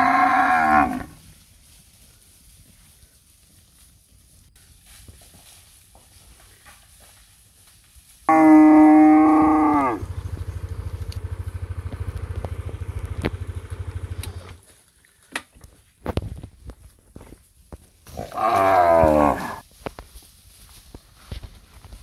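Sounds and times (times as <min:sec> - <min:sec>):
cattle mooing: 0:00.0 - 0:01.2, 0:08.3 - 0:10.2, 0:18.2 - 0:19.6
low pulsing rumble: 0:09.2 - 0:14.6.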